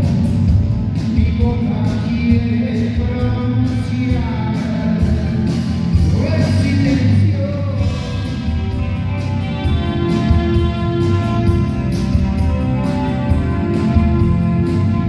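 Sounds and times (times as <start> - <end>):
live rock band playing: 0.0 - 15.0
man singing: 1.0 - 9.2.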